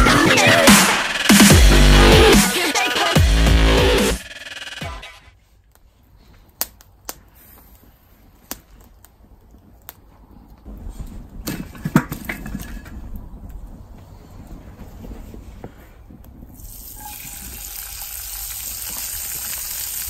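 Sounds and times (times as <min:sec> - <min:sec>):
wood fire crackling: 0:05.4 - 0:20.0
fire popping: 0:05.6 - 0:20.0
fire rushing hiss: 0:16.6 - 0:20.0.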